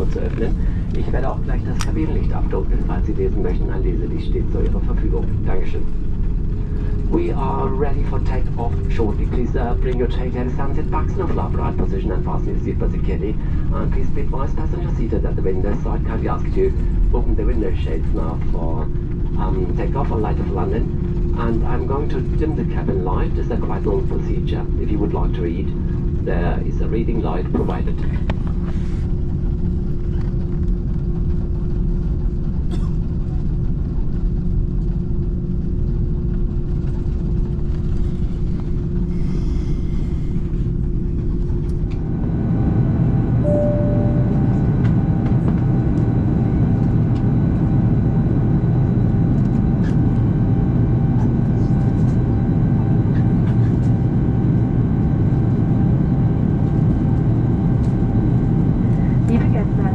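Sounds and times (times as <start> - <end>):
aircraft cabin rumble: 0.0 - 59.9
jet engine whining tones: 34.3 - 59.9
short single tone: 43.4 - 45.0.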